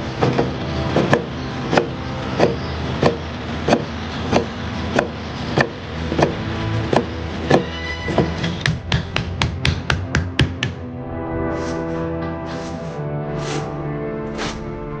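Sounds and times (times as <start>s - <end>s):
cleaver chopping on wooden board: 0.2s - 6.3s, 6.9s - 10.8s.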